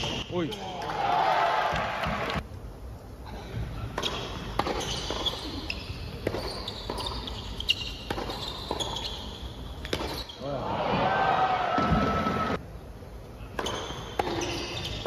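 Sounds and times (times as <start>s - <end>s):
rackets hitting tennis ball: 3.8s - 10.4s, 13.4s - 15.0s
tennis ball bouncing on court: 3.9s - 9.2s, 9.8s - 10.3s, 13.5s - 15.0s.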